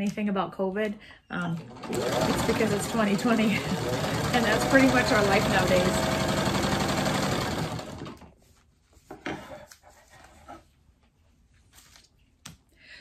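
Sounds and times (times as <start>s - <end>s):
sewing machine stitching: 1.5s - 8.3s.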